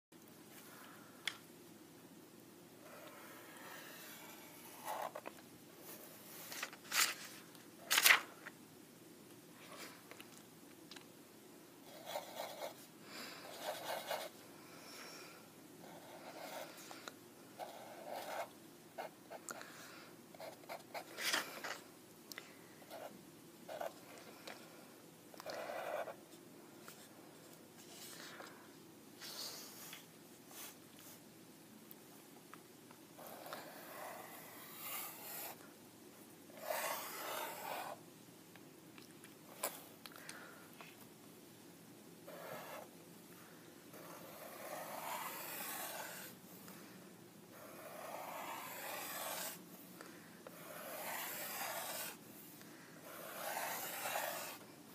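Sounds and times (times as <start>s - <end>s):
marker scratching on paper: 2.9s - 5.2s, 11.9s - 12.8s, 13.5s - 14.4s, 15.8s - 16.8s, 17.6s - 19.1s, 20.4s - 21.2s, 25.4s - 26.2s, 33.2s - 35.6s, 36.5s - 38.0s, 42.3s - 42.9s, 44.0s - 46.4s, 47.6s - 49.6s, 50.6s - 52.2s, 53.0s - 54.6s.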